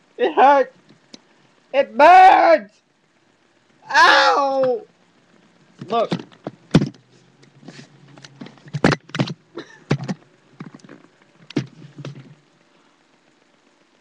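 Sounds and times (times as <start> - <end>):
knocks thumps and scuffles: 5.8 - 12.4.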